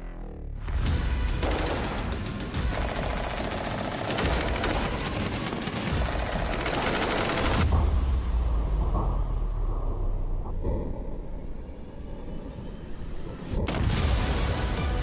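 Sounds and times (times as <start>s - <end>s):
background music: 0.4s - 9.7s, 12.9s - 15.0s
rifle fire bursts: 1.3s - 7.6s.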